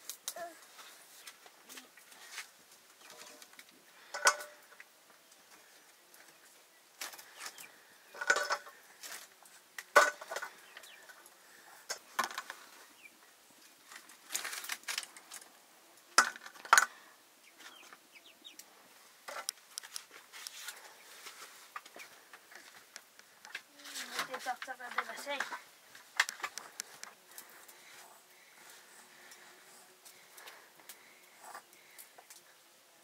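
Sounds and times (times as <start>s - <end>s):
chickens clucking: 16.6s - 19.4s.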